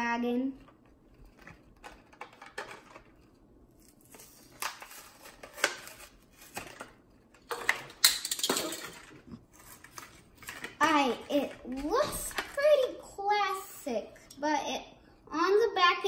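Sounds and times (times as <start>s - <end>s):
plastic and cardboard packaging tearing: 1.2s - 7.4s.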